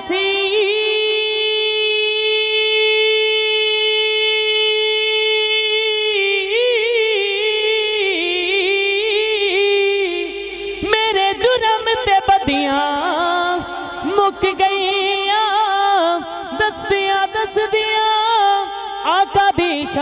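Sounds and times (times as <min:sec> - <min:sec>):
person singing devotional song: 0:00.0 - 0:20.0.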